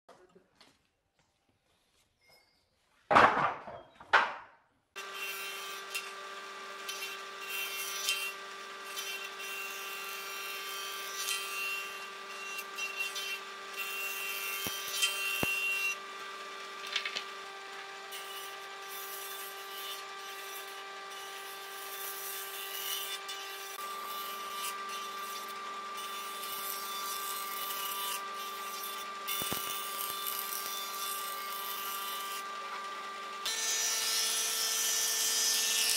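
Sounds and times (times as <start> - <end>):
boards knocking down: 3.1 - 4.6
jointer-planer planing wood: 5.0 - 35.9.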